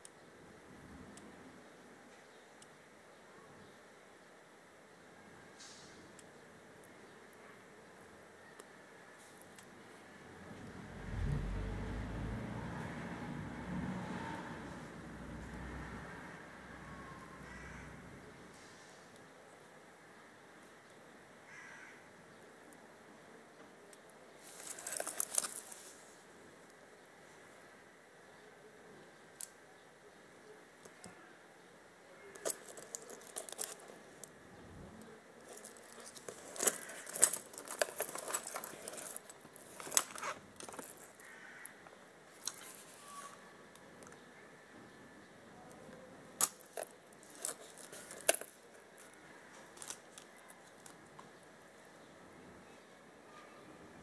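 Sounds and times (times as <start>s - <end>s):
metal watch bracelet clinking: 24.5s - 25.8s, 32.4s - 34.0s, 35.4s - 41.2s, 46.4s - 49.1s.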